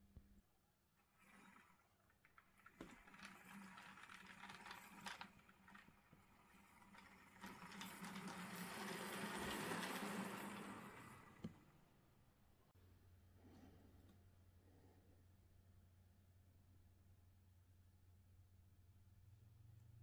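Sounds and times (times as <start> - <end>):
wheels clicking on rails: 1.0 - 11.7
model train motor whirring: 1.1 - 11.6.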